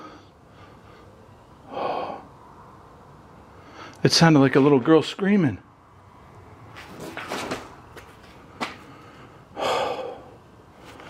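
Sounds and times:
man breathing hard and gasping: 0:00.0 - 0:02.5, 0:03.5 - 0:04.0, 0:08.8 - 0:11.0.

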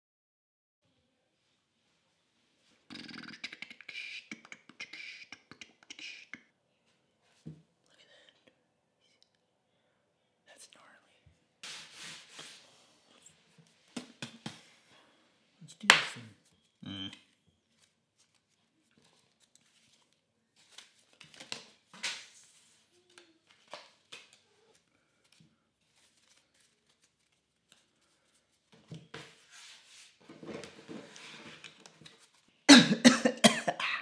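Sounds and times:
playing cards shuffling: 0:17.7 - 0:28.5.

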